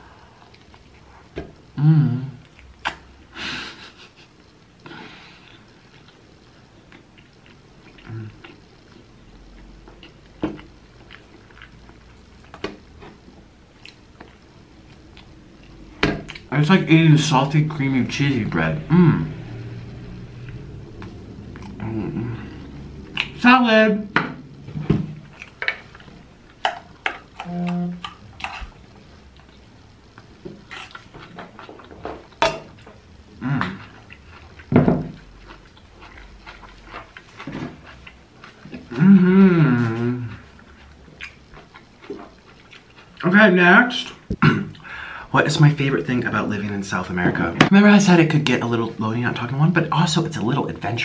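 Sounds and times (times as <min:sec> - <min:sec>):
person chewing food: 0:00.0 - 0:01.4, 0:04.3 - 0:16.5, 0:20.4 - 0:23.4, 0:24.5 - 0:39.1, 0:39.8 - 0:43.3
sharp mouth smacks: 0:02.8 - 0:03.0.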